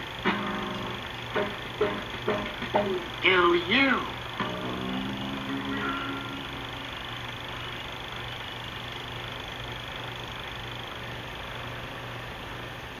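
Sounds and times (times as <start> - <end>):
projector soundtrack hiss and hum: 0.0 - 13.0
tone: 4.4 - 7.2.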